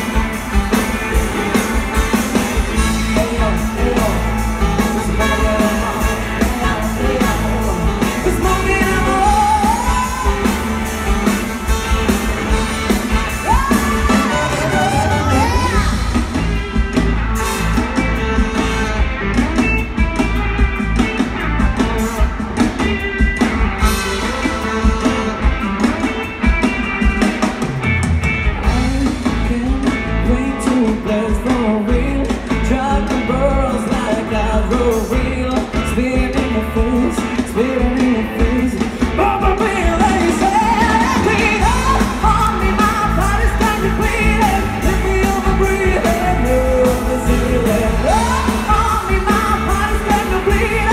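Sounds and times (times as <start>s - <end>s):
man singing: 0.0s - 12.2s, 28.6s - 50.9s
live pop band: 0.0s - 50.9s
heavy steady bass: 28.0s - 50.9s.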